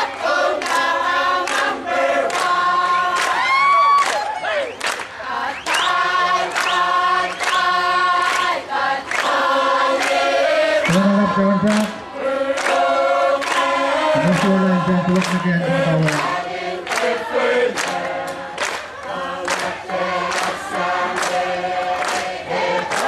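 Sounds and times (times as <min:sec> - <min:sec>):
crowd singing in parts: 0:00.0 - 0:03.6, 0:05.0 - 0:23.0
sharp beat keeping time: 0:10.9 - 0:12.0, 0:14.2 - 0:16.4.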